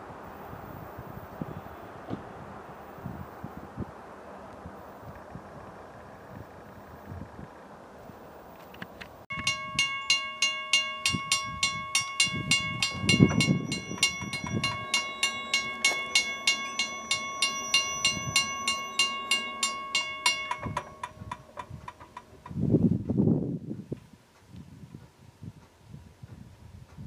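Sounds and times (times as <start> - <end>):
railroad crossing bell ringing: 9.3 - 22.6.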